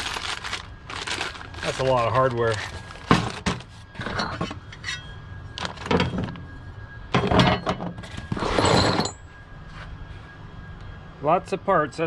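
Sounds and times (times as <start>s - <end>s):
bag of bolts clinking: 0.0s - 5.0s, 7.2s - 9.2s.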